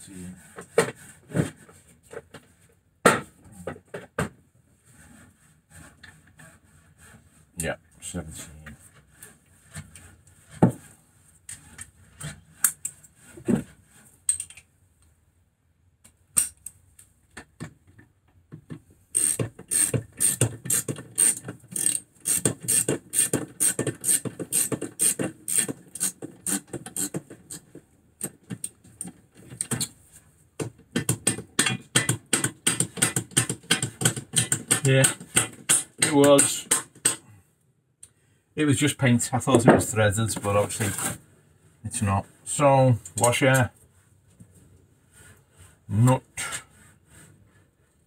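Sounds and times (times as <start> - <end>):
ratchet wrench clicking: 19.2 - 27.1.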